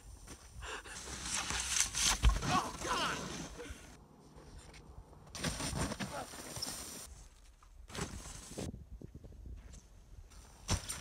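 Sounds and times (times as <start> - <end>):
person shouting: 2.5 - 3.7
snowboard scraping and spraying snow: 5.4 - 7.2.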